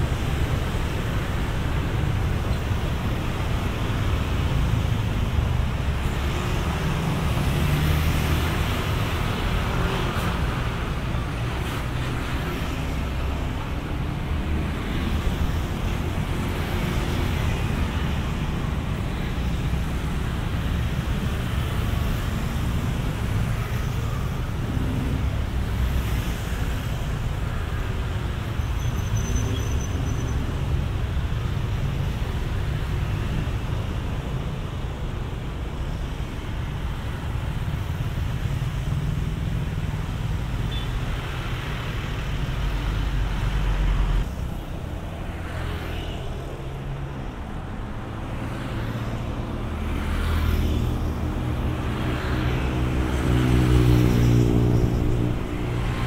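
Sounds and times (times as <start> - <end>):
traffic rumble: 0.0 - 56.0.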